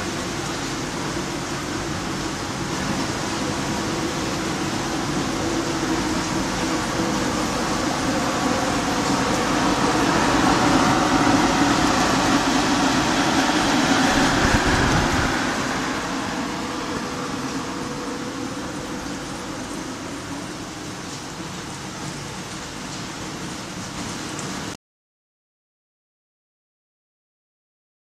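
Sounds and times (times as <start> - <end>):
blower fan air rushing: 0.0 - 22.8
industrial dryer humming: 0.0 - 24.7.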